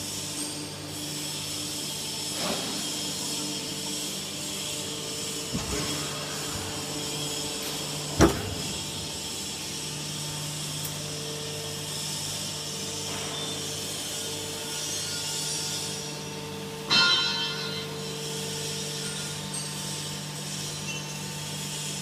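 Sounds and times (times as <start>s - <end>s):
hydraulic pump humming: 2.4s - 15.0s
ringing metal clang: 16.9s - 18.1s.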